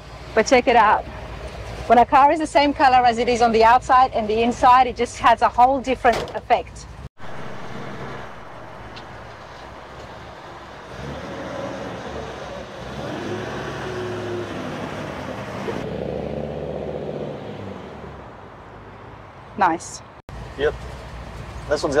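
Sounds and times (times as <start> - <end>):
car engine idling: 7.2 - 13.3.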